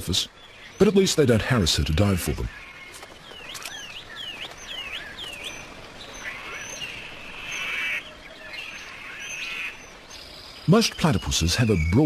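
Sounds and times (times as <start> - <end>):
kingfisher calling: 2.2 - 10.0.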